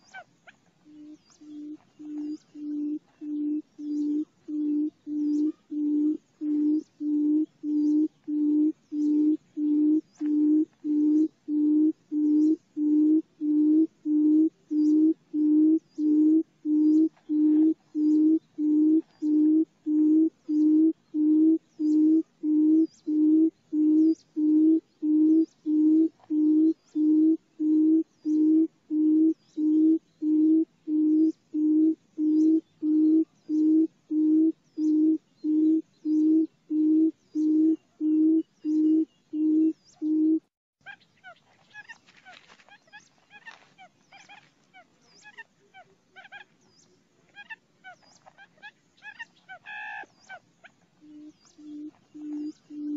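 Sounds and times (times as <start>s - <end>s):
bird low booming hoots: 0.8s - 40.5s, 51.0s - 52.9s.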